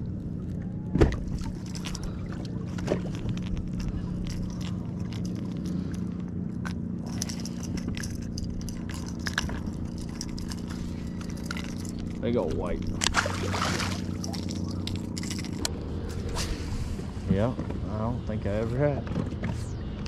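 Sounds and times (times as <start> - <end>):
steady low hum: 0.0 - 20.0
fishing hook clicks and scrapes: 1.2 - 16.5.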